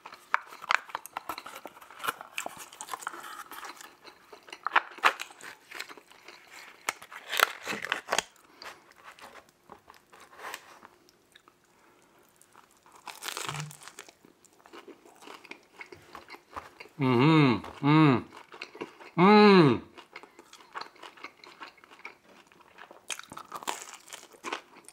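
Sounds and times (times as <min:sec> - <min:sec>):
wet chewing with crunchy clicks: 0:00.0 - 0:08.3, 0:10.9 - 0:17.0, 0:17.6 - 0:19.2, 0:19.9 - 0:24.9
person humming mmm: 0:13.5 - 0:13.8, 0:17.0 - 0:18.3, 0:19.2 - 0:19.9.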